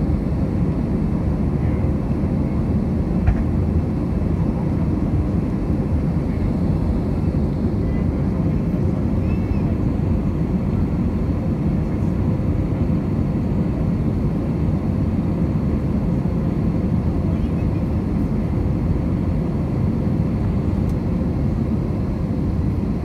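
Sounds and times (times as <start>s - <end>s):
jet engine cabin rumble: 0.0s - 23.0s.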